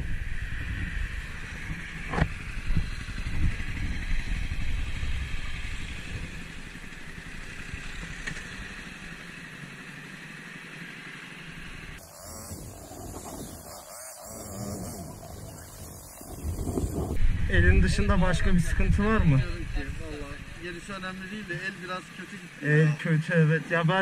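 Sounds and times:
wind noise on microphone: 0:00.0 - 0:06.5, 0:12.3 - 0:20.8
motorcycle engine running: 0:00.0 - 0:22.7.

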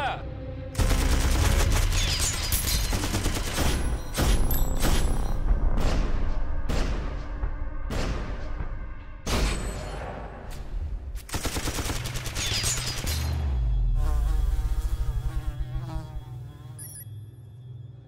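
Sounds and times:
machine gun firing: 0:00.8 - 0:05.1, 0:11.2 - 0:13.0
flies buzzing: 0:13.9 - 0:17.0.

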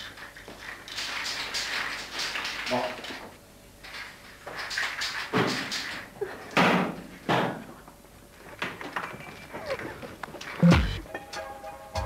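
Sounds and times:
knocks and bangs: 0:10.6 - 0:11.0.

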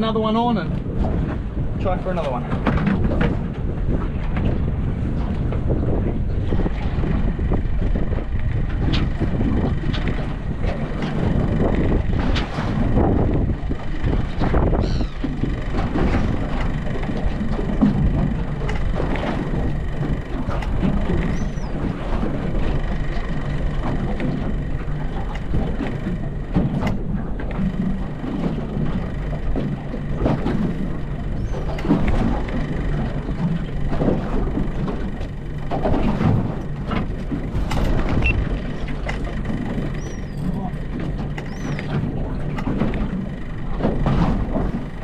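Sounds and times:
outboard motor running: 0:00.0 - 0:45.0
water noise: 0:00.0 - 0:45.0
wind: 0:00.0 - 0:45.0
faint gull call: 0:14.6 - 0:15.7, 0:21.1 - 0:21.8, 0:39.8 - 0:40.5, 0:41.4 - 0:41.9.

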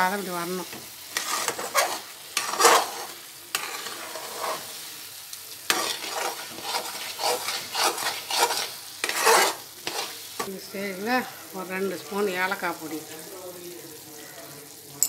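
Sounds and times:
mixture sizzling in a pan: 0:00.0 - 0:15.0
spatula scraping a pan: 0:00.4 - 0:10.5.

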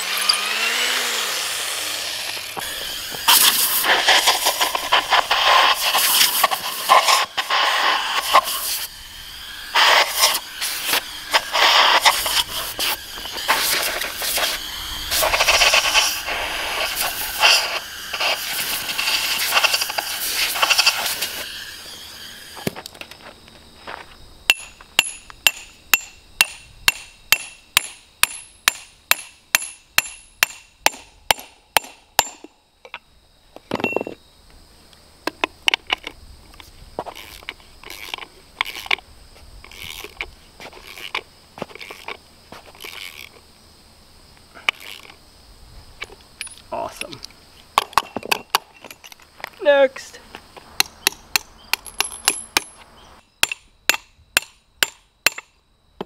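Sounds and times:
air hose hissing: 0:00.0 - 0:22.7
ratchet wrench clicking: 0:42.8 - 0:43.4.

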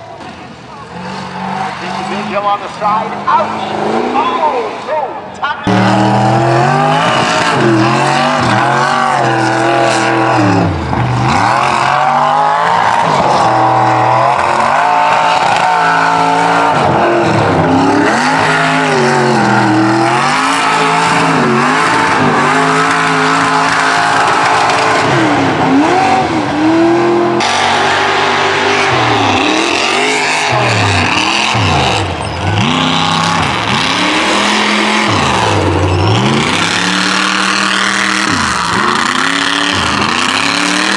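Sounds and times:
truck engines revving hard: 0:00.0 - 0:40.9.

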